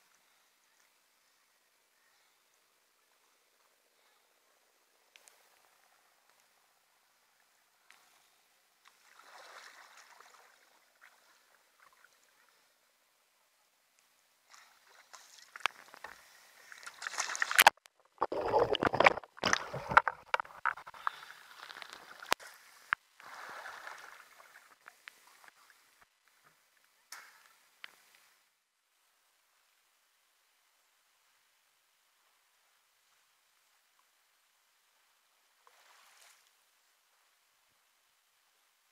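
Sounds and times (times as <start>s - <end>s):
water sloshing and splashing: 8.8s - 12.3s, 14.5s - 22.6s, 23.2s - 25.5s.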